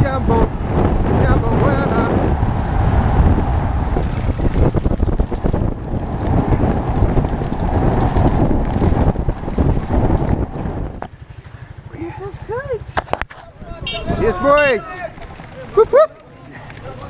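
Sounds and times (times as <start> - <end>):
wind buffeting microphone: 0.0 - 16.1
bike knocking and rattling: 3.8 - 17.0.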